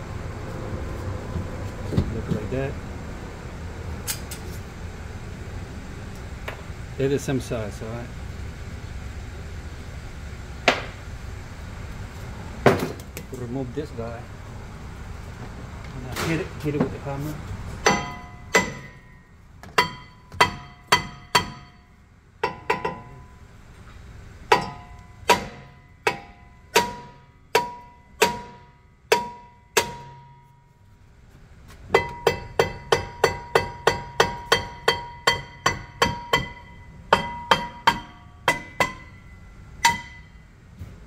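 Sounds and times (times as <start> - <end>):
hammer striking metal rotor: 17.8 - 23.3, 24.5 - 30.7, 31.9 - 40.4.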